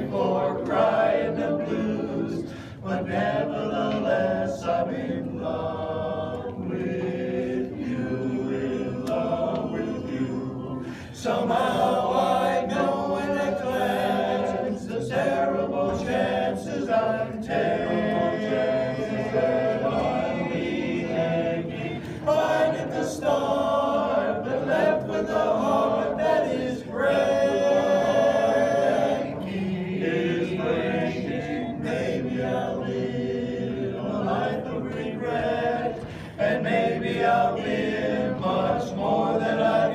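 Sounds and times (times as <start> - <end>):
men's chorus singing a cappella: 0.0 - 39.9.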